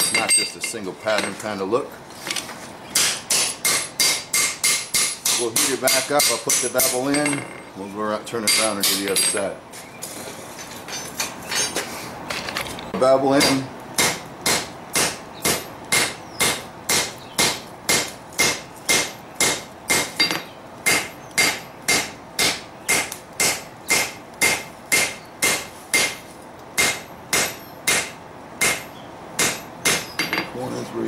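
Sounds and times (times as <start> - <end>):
hammer striking metal on anvil: 3.0 - 7.6, 8.4 - 9.5, 13.3 - 26.2, 26.8 - 30.5.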